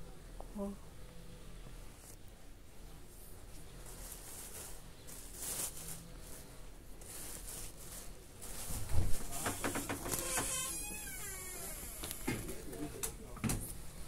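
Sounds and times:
plastic bag and cloth rustling: 3.2s - 11.4s.

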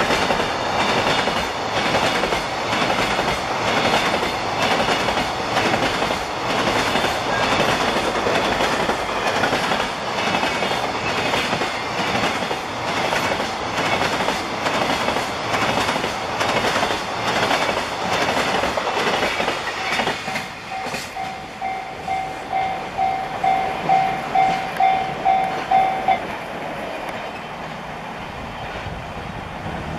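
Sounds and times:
train wheels clattering over joints: 0.0s - 26.2s
level crossing bell dinging: 20.7s - 26.2s.

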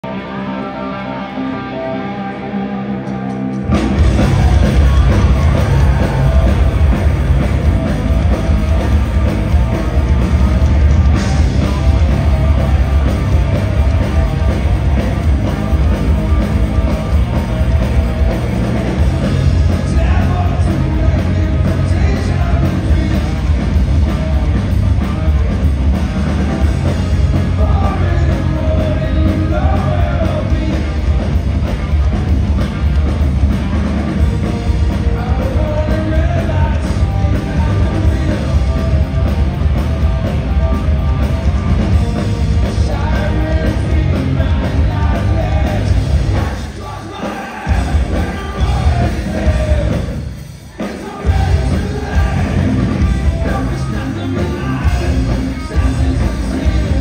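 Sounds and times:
lone electric guitar: 0.0s - 47.0s
live rock band playing: 0.0s - 57.0s
person singing: 26.2s - 31.2s, 42.6s - 57.0s.

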